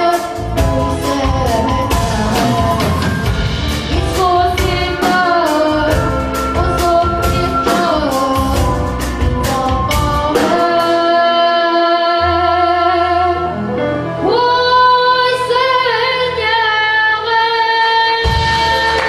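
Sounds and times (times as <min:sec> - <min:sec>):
drum strokes: 0:00.0 - 0:11.0
live band accompaniment: 0:00.0 - 0:19.0.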